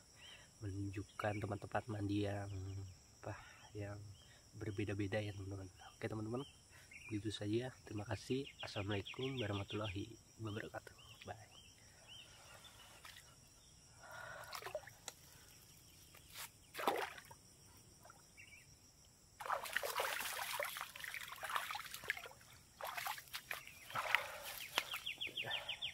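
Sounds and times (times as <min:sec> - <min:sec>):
swamp water splashing: 0:12.8 - 0:13.4, 0:14.0 - 0:15.6, 0:16.7 - 0:17.4, 0:19.4 - 0:25.8.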